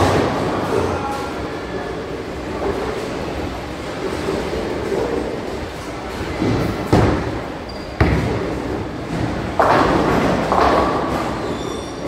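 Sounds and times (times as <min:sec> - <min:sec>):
bowling balls rolling: 0:03.8 - 0:12.0
clatter of bowling pins: 0:08.0 - 0:11.5.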